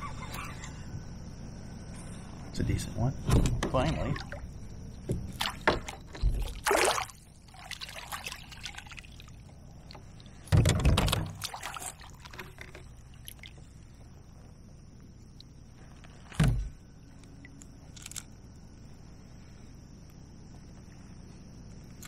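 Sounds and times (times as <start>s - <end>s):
water splashing: 3.9s - 4.5s, 5.2s - 13.7s
water pouring off net: 6.4s - 9.2s.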